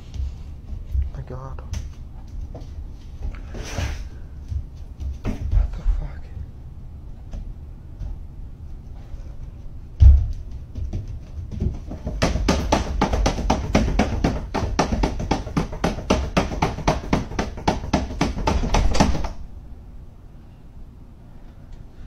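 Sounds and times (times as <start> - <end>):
rapid banging on door: 10.0 - 19.4.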